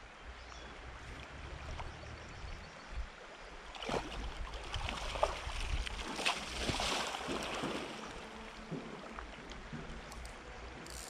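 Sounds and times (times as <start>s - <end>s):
water sloshing around wading legs: 3.7s - 10.2s.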